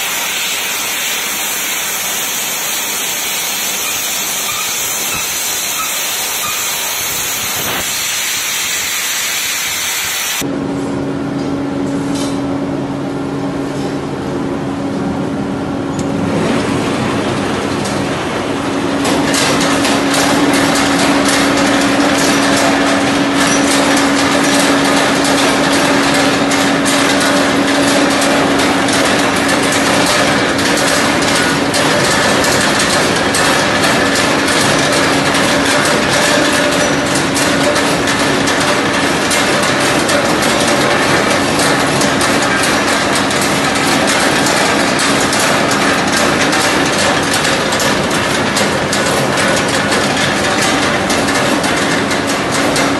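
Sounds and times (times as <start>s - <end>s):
steady motor hum: 0.0s - 52.9s.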